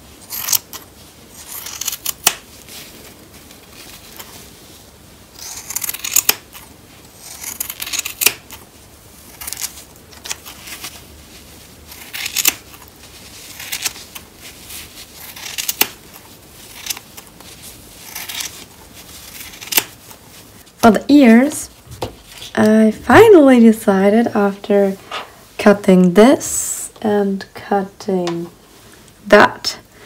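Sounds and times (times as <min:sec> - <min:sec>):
scissors snipping fleece: 0:05.4 - 0:08.7, 0:11.9 - 0:12.9, 0:15.1 - 0:17.3.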